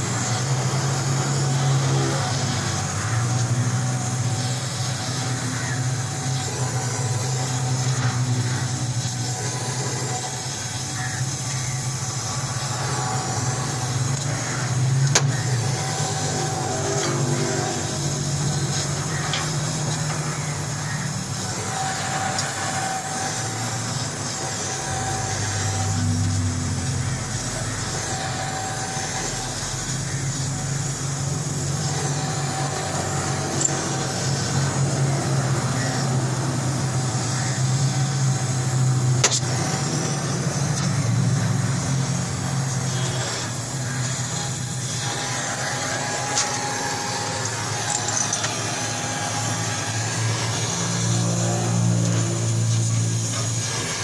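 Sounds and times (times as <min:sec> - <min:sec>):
engine humming: 0:00.0 - 0:54.0
welding torch flame hissing: 0:00.0 - 0:54.0
sharp click: 0:39.2 - 0:39.5.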